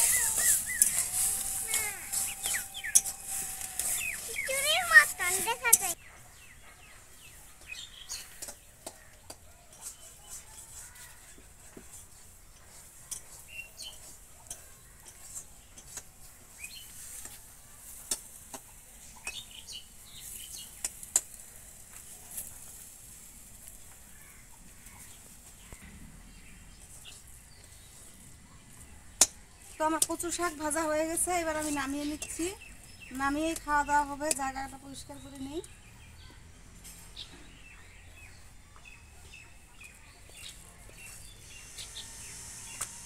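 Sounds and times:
metal spatula scraping a wok: 0.0 - 6.0.

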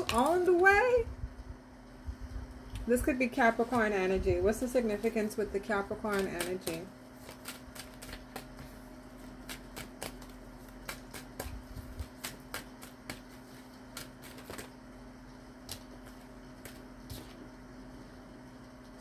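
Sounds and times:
faint steady hum: 0.0 - 19.0
cards being shuffled: 6.1 - 14.8, 15.6 - 17.5.

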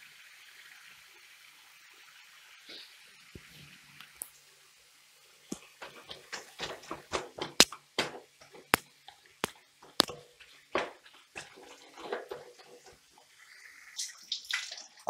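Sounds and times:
wooden spatula scraping wok: 5.8 - 8.8, 9.8 - 13.3.

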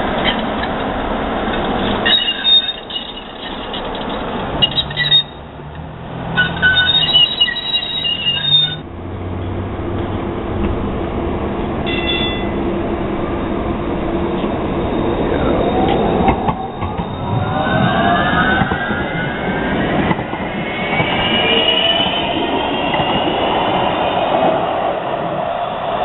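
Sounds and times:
train rumble: 0.0 - 26.0
high train wheel squeal: 1.6 - 5.4, 6.4 - 8.8, 11.8 - 26.0.

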